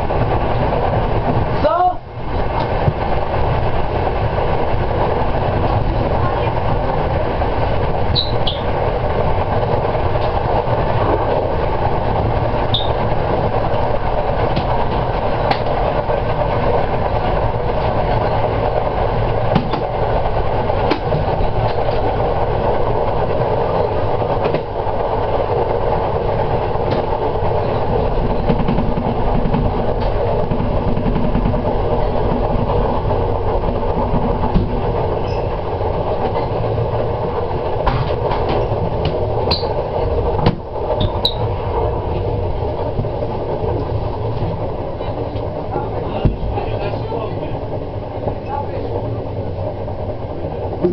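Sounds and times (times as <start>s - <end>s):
train wheels rumbling on rails: 0.0s - 50.9s.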